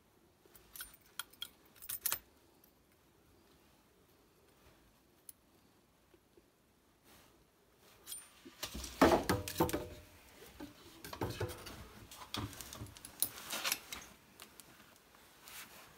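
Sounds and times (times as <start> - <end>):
metal plumbing parts clattering: 8.1 - 14.1.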